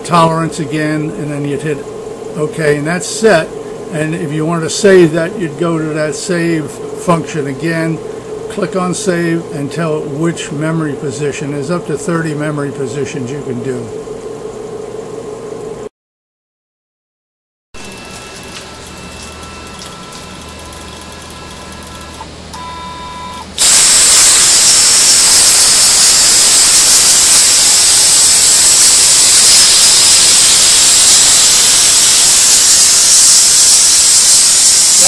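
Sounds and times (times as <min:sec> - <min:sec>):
steady hum with high whine: 0:00.0 - 0:15.9, 0:17.8 - 0:35.0
plasma cutter arc hissing: 0:23.5 - 0:35.0.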